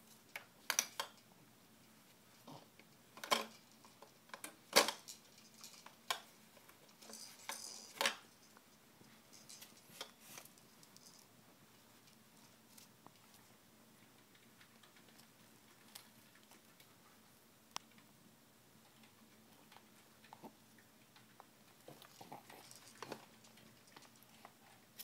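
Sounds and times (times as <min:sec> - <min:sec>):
plastic toys clicking and clattering: 0:03.1 - 0:08.6, 0:18.9 - 0:24.6.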